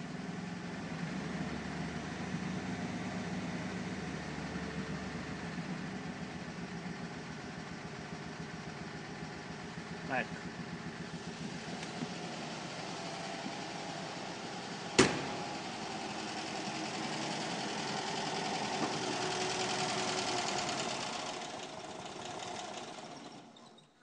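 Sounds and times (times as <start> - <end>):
car engine idling: 0.0 - 23.6
sharp bang: 15.0 - 15.6.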